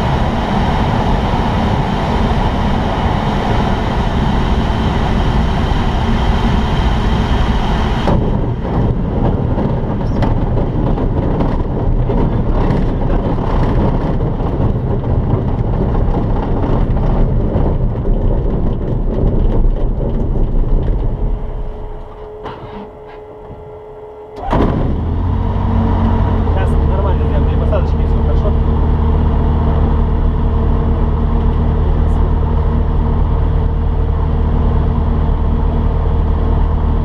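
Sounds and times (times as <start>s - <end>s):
aircraft wheels rumbling over grass: 0.0s - 37.0s.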